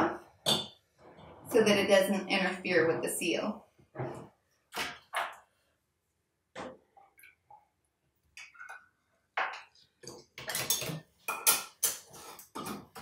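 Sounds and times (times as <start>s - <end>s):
ladle clinking against pots and jars: 10.4s - 12.0s.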